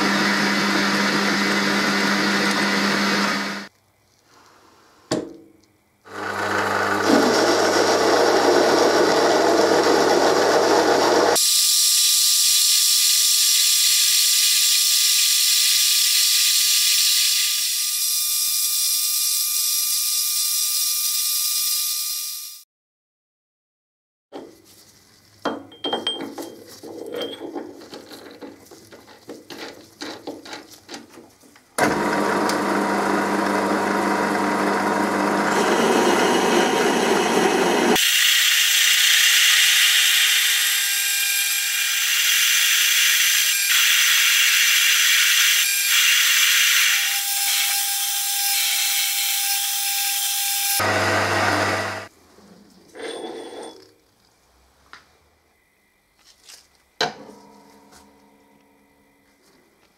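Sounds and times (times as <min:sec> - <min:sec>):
metal lathe cutting metal: 0:06.1 - 0:11.4, 0:31.8 - 0:52.1
clicks and knocks of handling work: 0:25.4 - 0:31.8.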